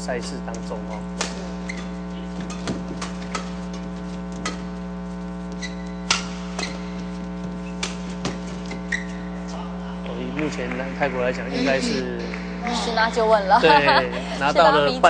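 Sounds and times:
electrical hum: 0.0 - 15.0
shoe squeaks on court: 0.9 - 3.8, 5.5 - 9.5
rackets hitting shuttlecock: 1.2 - 3.7, 5.6 - 6.9, 7.8 - 9.1.

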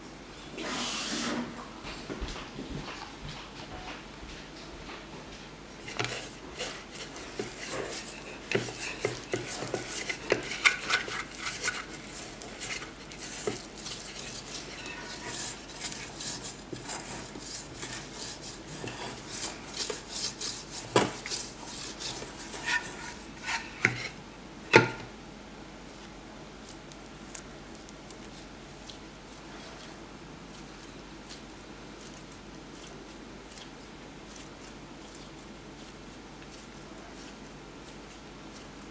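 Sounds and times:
dough rubbing in metal bowl: 5.7 - 24.2.

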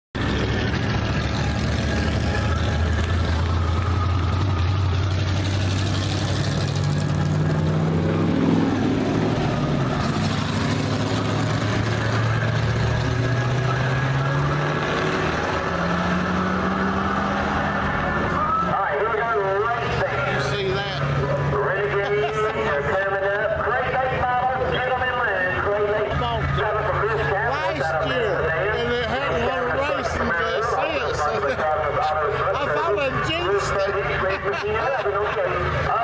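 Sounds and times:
race car engines accelerating: 0.2 - 36.0.

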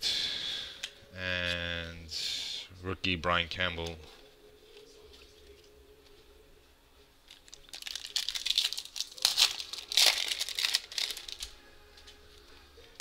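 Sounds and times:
foil wrapper tearing and crinkling: 7.3 - 11.6.

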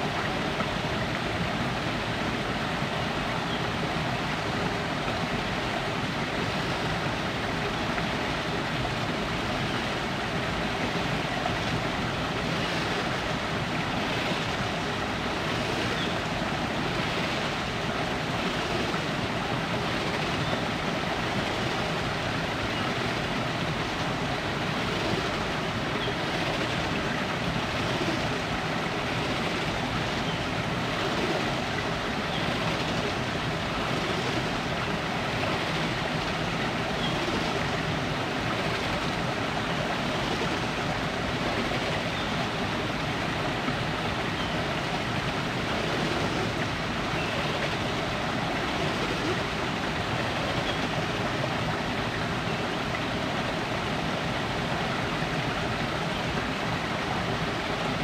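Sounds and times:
river rushing over rocks: 0.0 - 58.0.

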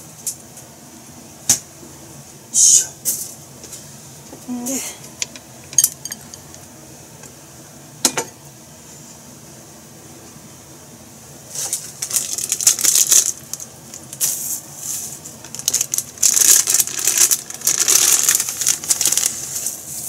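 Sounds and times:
plastic packaging crinkling: 11.5 - 20.0.

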